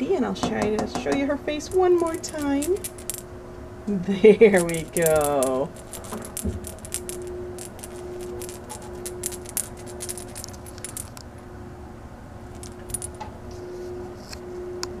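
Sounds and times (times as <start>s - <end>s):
steady hum: 0.0s - 15.0s
rapid jingling and clicking: 1.7s - 3.2s, 4.5s - 11.2s, 12.5s - 13.2s.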